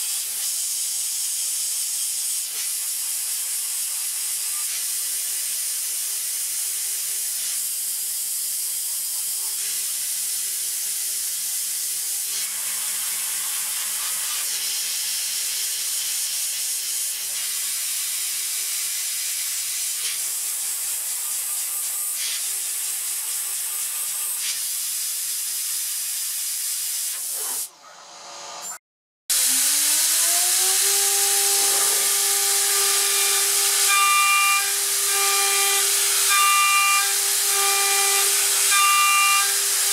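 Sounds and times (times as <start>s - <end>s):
end mill milling metal: 29.3s - 39.9s
router spindle whining: 29.3s - 39.9s.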